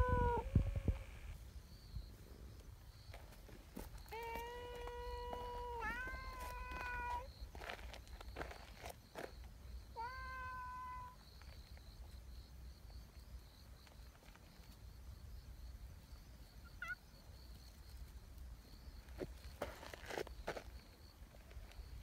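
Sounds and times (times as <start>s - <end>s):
cat meowing: 0.0s - 0.8s, 4.1s - 7.3s, 10.0s - 11.2s, 16.8s - 17.0s.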